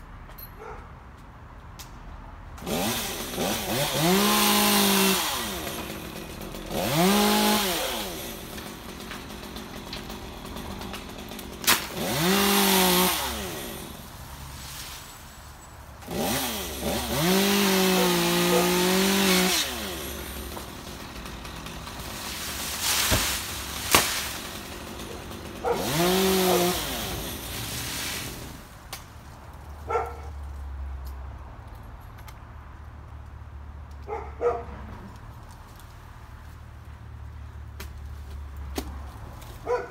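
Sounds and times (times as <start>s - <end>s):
chainsaw revving and idling: 2.6s - 14.9s, 16.0s - 28.7s.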